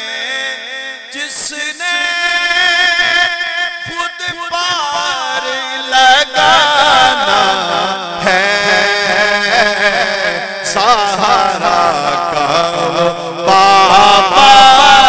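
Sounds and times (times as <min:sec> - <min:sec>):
man singing into a microphone: 0:00.0 - 0:15.0.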